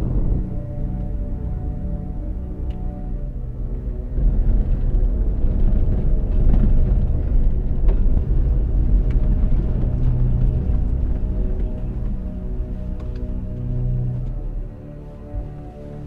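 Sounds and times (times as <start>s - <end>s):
car road rumble: 0.0s - 2.8s, 4.0s - 13.4s
soundtrack music: 0.0s - 16.0s.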